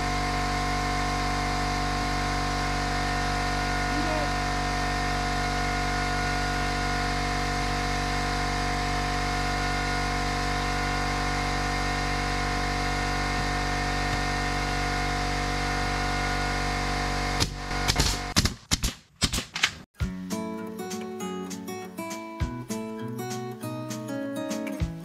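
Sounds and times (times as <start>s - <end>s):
small motor humming: 0.0s - 18.4s.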